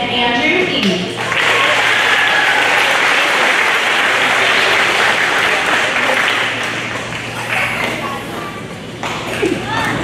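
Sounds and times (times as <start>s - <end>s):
audience applauding: 1.2s - 8.1s.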